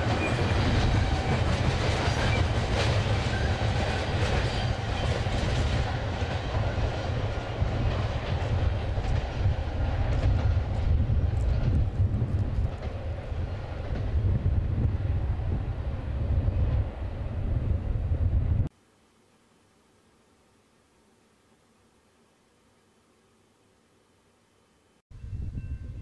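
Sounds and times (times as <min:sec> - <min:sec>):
train wheels rumbling on rail: 0:00.0 - 0:18.7.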